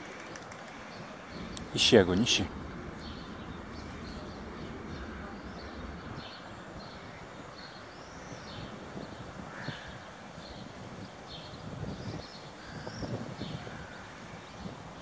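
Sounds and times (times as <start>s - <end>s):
birds chirping: 0.0s - 15.0s
steady low rumble: 0.7s - 9.5s.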